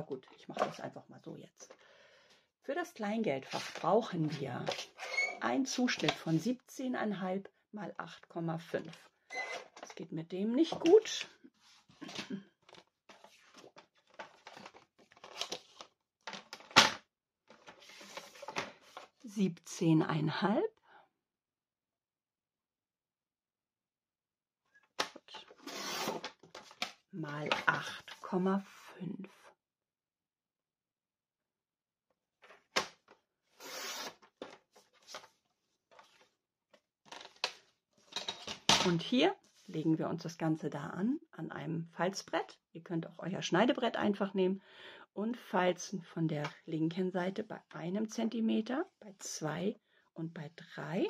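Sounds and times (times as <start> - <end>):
paper taps and rustles: 12.6 - 19.1
cardstock rustling and sliding: 17.5 - 19.2.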